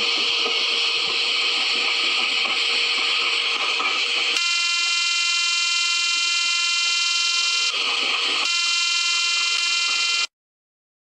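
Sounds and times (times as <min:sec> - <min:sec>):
buzzing horn tone: 0:04.4 - 0:07.8, 0:08.4 - 0:10.3.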